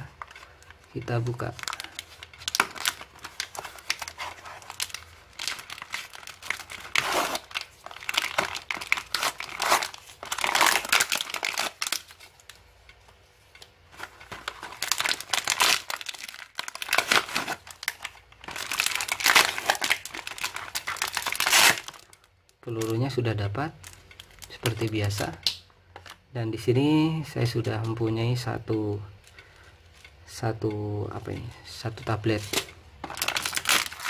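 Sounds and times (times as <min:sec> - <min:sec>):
cardboard and plastic being torn: 0:01.2 - 0:12.3, 0:14.0 - 0:22.2, 0:32.4 - 0:34.0.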